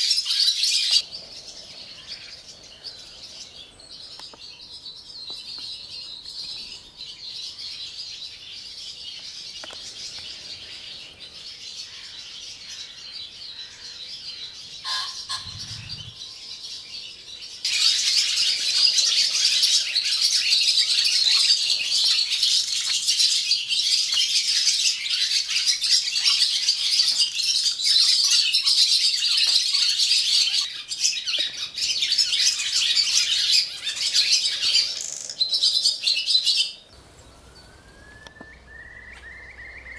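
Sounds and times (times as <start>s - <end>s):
barn swallows twittering: 14.9s - 16.3s.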